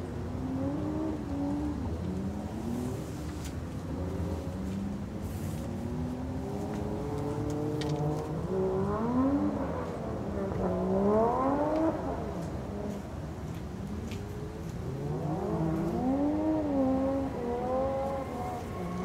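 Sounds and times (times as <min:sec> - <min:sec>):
jet engines rumbling and whining: 0:17.2 - 0:19.0.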